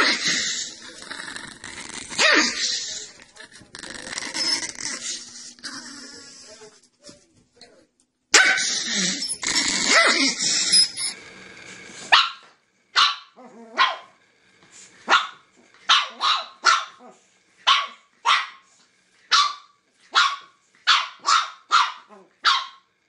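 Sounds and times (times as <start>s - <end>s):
puppy barking high-pitched: 8.3s - 8.8s, 12.1s - 14.2s, 15.1s - 17.0s, 17.6s - 18.7s, 19.3s - 22.9s.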